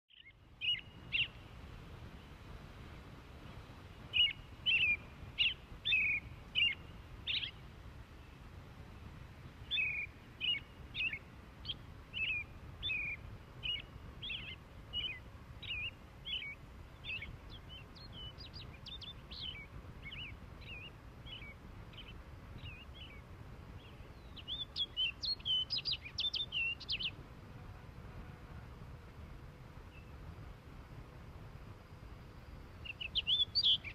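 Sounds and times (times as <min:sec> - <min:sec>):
bird chirping: 0:00.1 - 0:01.5, 0:04.0 - 0:27.2, 0:32.4 - 0:33.9
faint low rumble: 0:00.1 - 0:33.9.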